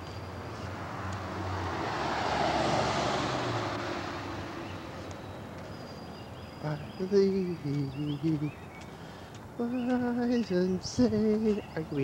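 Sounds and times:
vehicle passing: 0.1 - 5.8.

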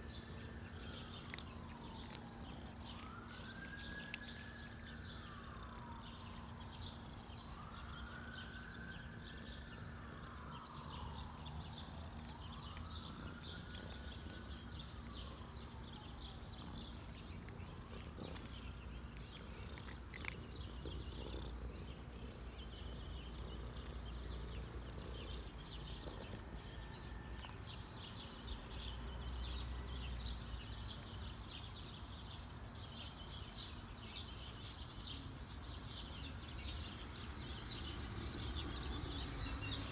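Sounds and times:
birds chirping: 0.0 - 39.9
siren wailing: 0.4 - 18.8
cat purring: 0.7 - 4.1, 11.8 - 27.5.

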